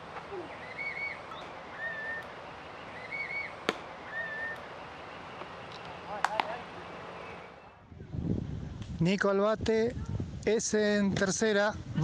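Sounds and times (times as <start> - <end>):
outdoor background noise: 0.0 - 12.0
songbird whistling: 0.3 - 5.5.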